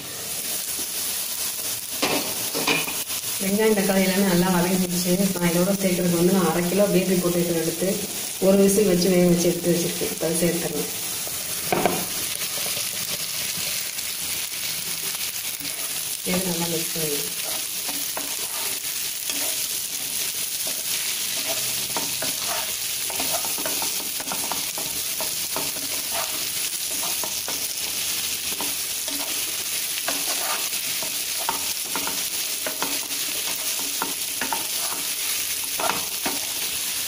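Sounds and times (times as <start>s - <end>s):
potatoes sizzling in oil: 0.0s - 37.0s
spatula scraping a pan: 12.0s - 14.0s, 17.2s - 36.8s.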